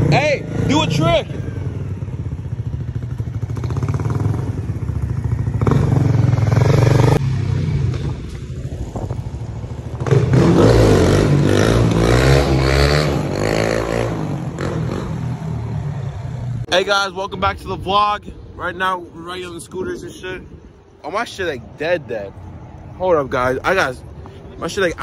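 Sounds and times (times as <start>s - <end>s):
dirt bike engine revving: 0.0s - 8.2s, 10.0s - 16.4s.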